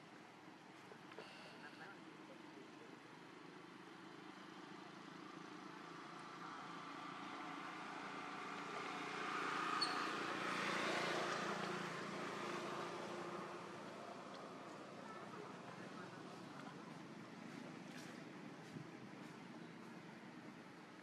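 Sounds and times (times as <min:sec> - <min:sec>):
vehicle passing by: 0:05.9 - 0:16.5.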